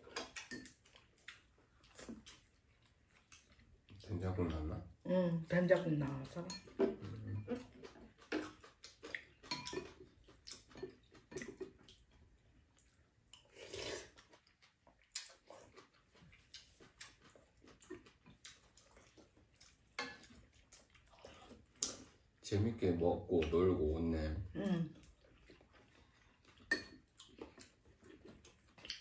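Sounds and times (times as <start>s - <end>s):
lip smacks and chewing: 0.0s - 4.1s, 6.8s - 22.4s, 24.9s - 29.0s
slurping broth: 13.4s - 14.3s.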